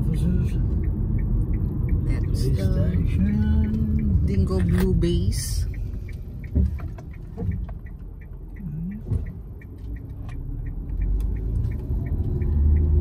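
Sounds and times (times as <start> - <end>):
car turn indicator ticking: 0.0 - 13.0
engine and tyre rumble: 0.0 - 13.0.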